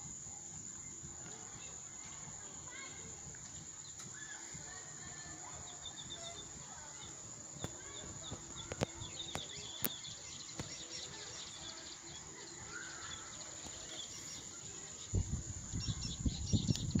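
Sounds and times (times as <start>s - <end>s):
high insect drone: 0.0s - 17.0s
bird chirps: 3.4s - 17.0s.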